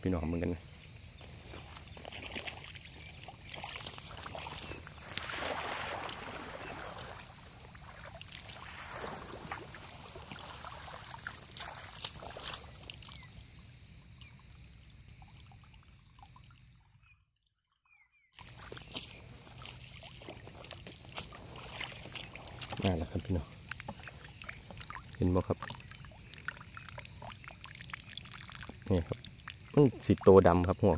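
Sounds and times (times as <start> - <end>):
pond water splashing: 0.7 - 17.1, 18.3 - 30.9
person wading in rubber boots: 1.2 - 13.5, 18.4 - 30.2.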